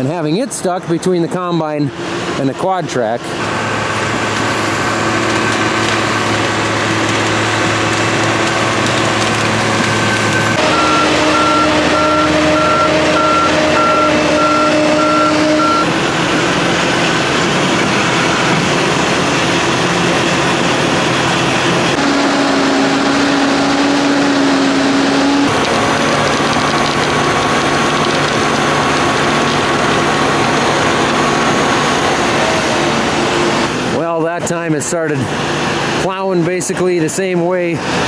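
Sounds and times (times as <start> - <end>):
diesel engines running: 0.0 - 38.0
backup alarm beeping: 10.3 - 15.9.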